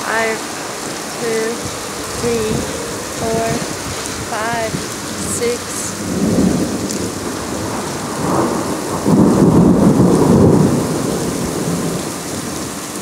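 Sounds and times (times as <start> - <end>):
heavy rain: 0.0 - 13.0
thunder rumbling: 5.9 - 13.0.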